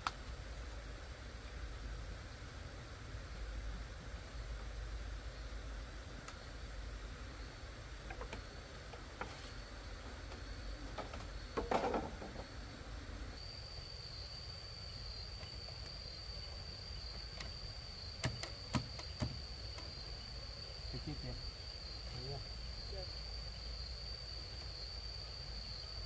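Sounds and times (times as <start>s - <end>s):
high-pitched insect drone: 4.3s - 26.0s
bamboo poles knocking: 18.2s - 19.4s.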